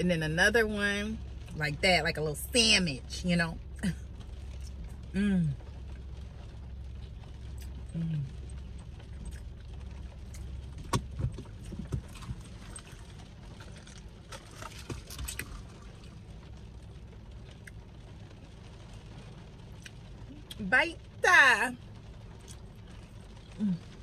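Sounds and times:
car interior rumble: 0:00.0 - 0:24.0
chewing: 0:07.6 - 0:09.6, 0:10.2 - 0:16.1.

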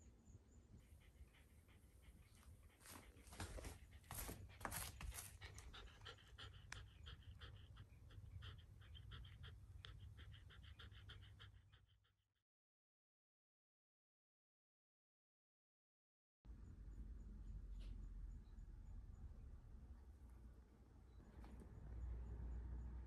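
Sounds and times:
dog panting: 0:00.7 - 0:12.3.

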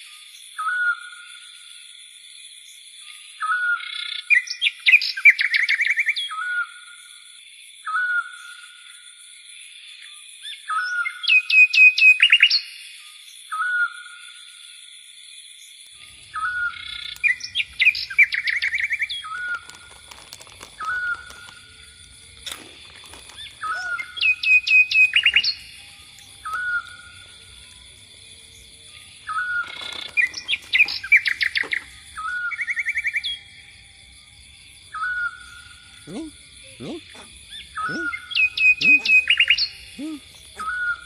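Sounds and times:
bird-like chirping and trills: 0:15.6 - 0:41.0.

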